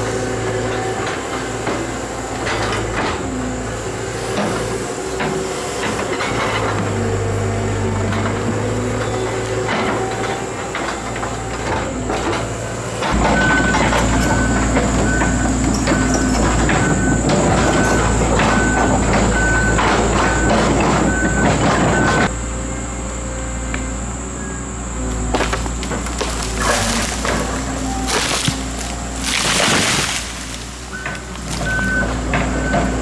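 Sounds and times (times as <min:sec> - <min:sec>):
excavator diesel engine running: 0:00.0 - 0:33.0
regular warning beeps: 0:13.2 - 0:22.3, 0:30.9 - 0:33.0
sharp cracks and knocks: 0:25.3 - 0:32.8.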